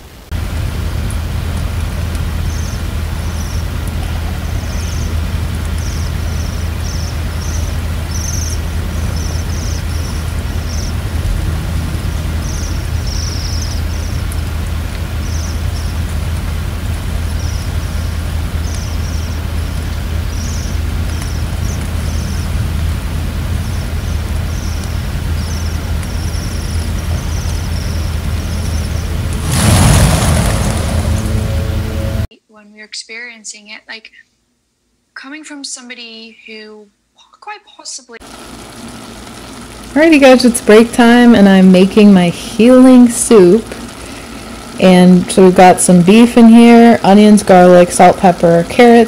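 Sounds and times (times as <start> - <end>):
steady low rumble: 0.0 - 32.3
small birds calling: 2.2 - 29.3.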